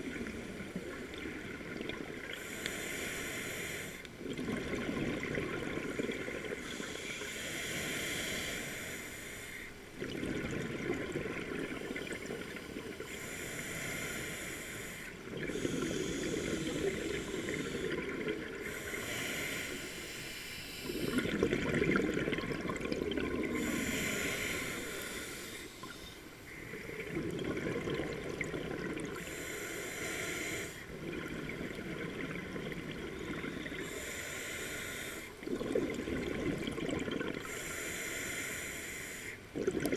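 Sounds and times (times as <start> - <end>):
hissing regulator inhale: 2.3 - 4.1, 5.9 - 9.7, 12.7 - 21.4, 23.4 - 27.0, 29.2 - 31.0, 33.6 - 35.4, 37.4 - 39.4
exhaled air bubbling: 4.0 - 7.0, 10.0 - 13.8, 15.1 - 19.8, 20.7 - 29.5, 30.8 - 34.2, 35.2 - 37.6, 39.4 - 39.9.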